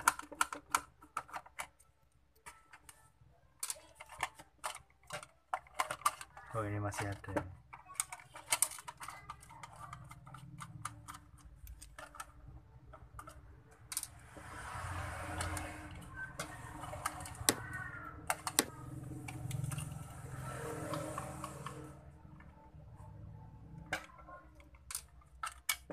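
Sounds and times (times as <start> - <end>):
rubbing and handling noise: 0.0 - 25.9.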